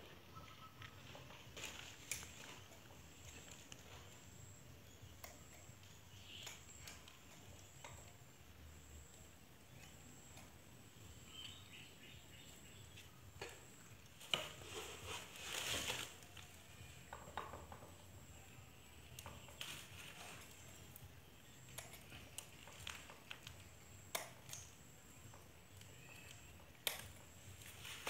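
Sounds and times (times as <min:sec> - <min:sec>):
rustling twigs and leaves: 0:00.0 - 0:08.0, 0:11.2 - 0:28.0.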